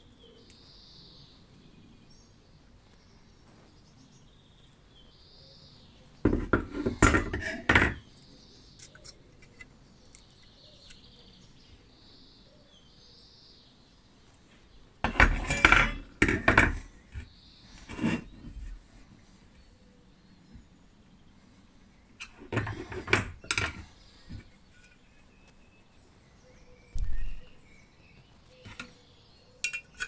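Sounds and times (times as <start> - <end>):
sheet metal clanking and scraping: 6.3 - 8.0, 15.0 - 16.9, 17.8 - 18.6, 22.2 - 25.0.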